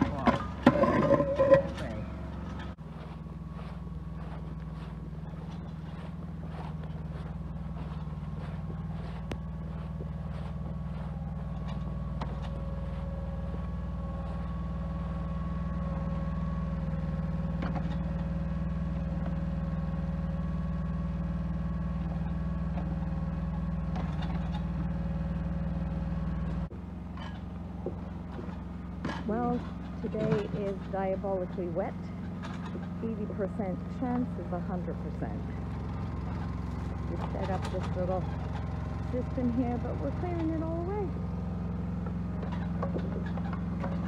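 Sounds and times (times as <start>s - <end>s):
steady whine: 0.0s - 20.4s
diesel engine running: 0.0s - 44.0s.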